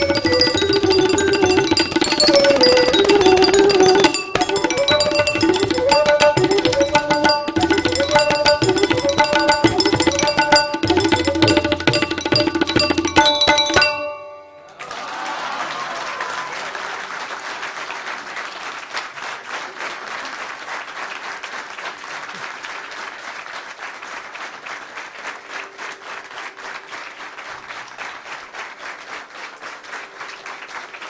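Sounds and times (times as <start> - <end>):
audience applauding: 14.7 - 31.0.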